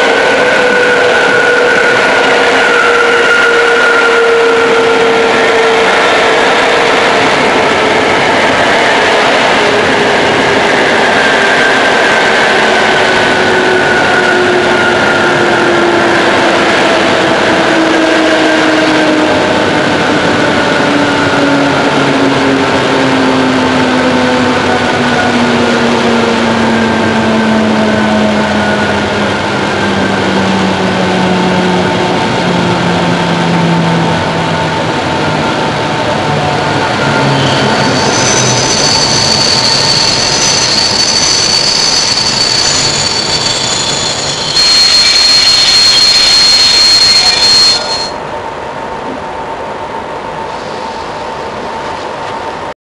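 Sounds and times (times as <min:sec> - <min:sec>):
train wheel rolling noise: 0:00.0 - 0:52.7
train motor whine: 0:12.7 - 0:48.4.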